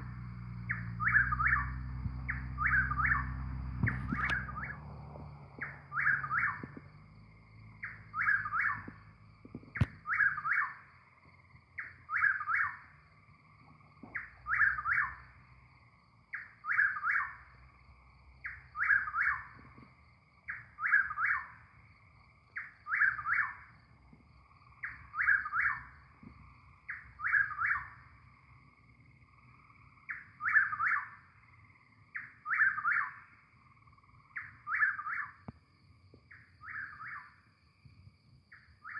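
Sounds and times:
bird singing whistled notes: 0.6s - 4.9s, 5.6s - 6.9s, 7.8s - 9.1s, 9.7s - 10.9s, 11.8s - 13.0s, 14.1s - 15.3s, 16.3s - 17.5s, 18.4s - 19.6s, 20.5s - 21.6s, 22.6s - 23.8s, 24.8s - 26.0s, 26.8s - 28.1s, 30.1s - 31.3s, 32.1s - 33.3s, 34.3s - 35.5s, 36.3s - 37.4s, 38.5s - 38.9s.

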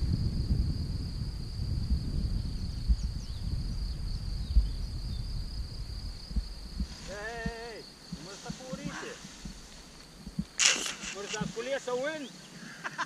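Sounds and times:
wind rumbling on microphone: 0.0s - 12.8s
crickets chirring: 0.0s - 13.0s
bird chirping: 2.8s - 5.4s, 7.1s - 12.7s.

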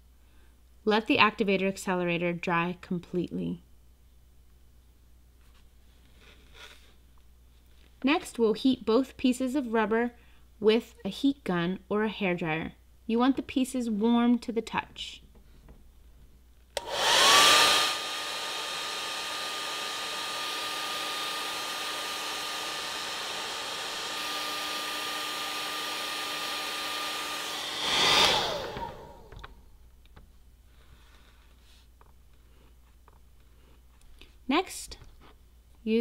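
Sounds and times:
hair dryer motor whine: 16.8s - 29.6s
rush of air: 27.5s - 29.3s.

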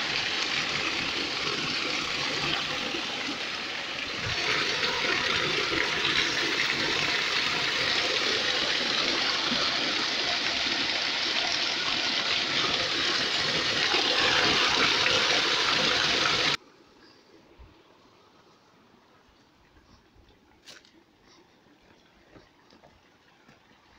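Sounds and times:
water rushing down a hole: 0.0s - 16.6s.

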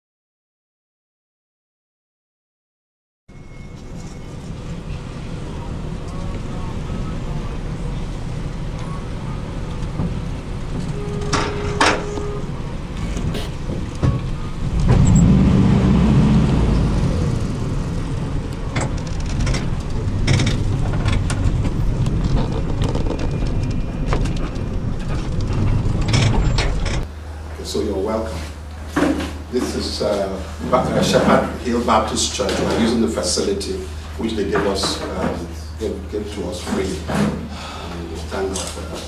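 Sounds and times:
van engine and road rumble: 3.5s - 27.3s
knocks and rattles: 18.6s - 27.1s.

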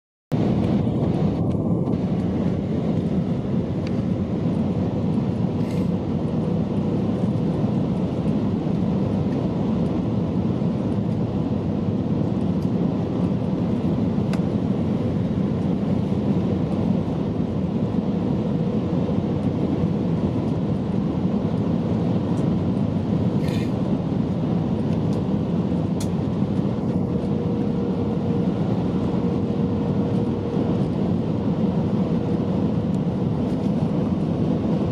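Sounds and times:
jet engines: 0.3s - 34.9s
rushing air: 0.4s - 6.5s.

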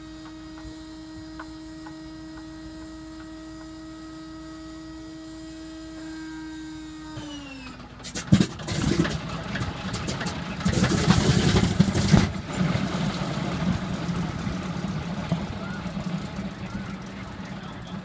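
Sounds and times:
radial engine running unevenly: 0.0s - 6.4s, 7.0s - 18.0s
starter whine: 0.0s - 18.0s
engine firing bang: 7.5s - 14.6s.

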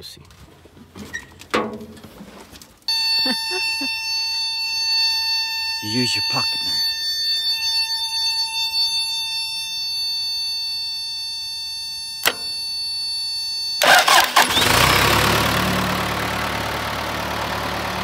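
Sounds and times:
electronic buzzer tone: 2.9s - 14.1s
diesel engine cranking and idling: 13.8s - 18.0s.

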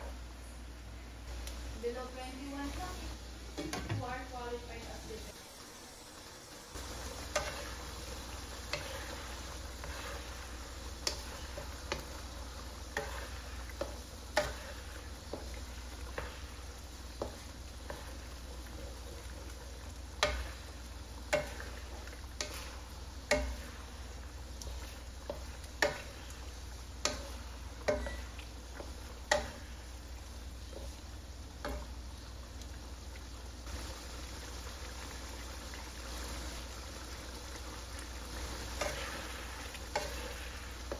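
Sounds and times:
curry sizzling: 0.0s - 40.9s
spatula knocking against pan: 21.3s - 21.7s, 23.2s - 23.7s, 25.2s - 26.1s, 27.0s - 29.6s.

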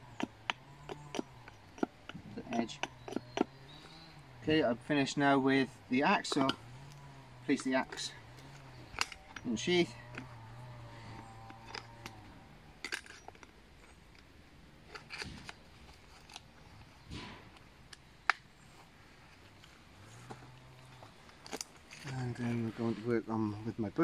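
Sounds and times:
hand tools clicking and knocking: 0.0s - 4.0s, 6.0s - 14.3s.

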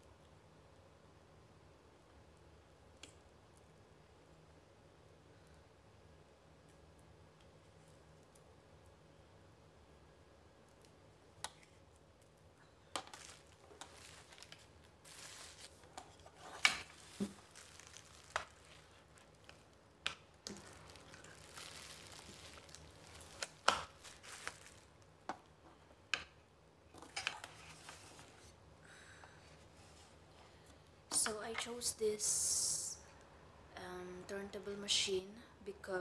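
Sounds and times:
rustling: 11.5s - 25.1s, 27.0s - 28.6s.

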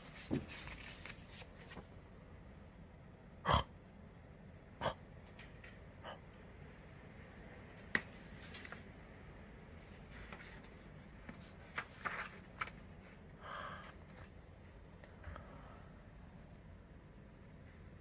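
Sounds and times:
booklet pages turning: 0.0s - 1.9s, 7.9s - 8.9s, 9.7s - 13.2s
paper rustle: 0.0s - 1.9s, 8.0s - 8.9s, 9.7s - 13.2s.

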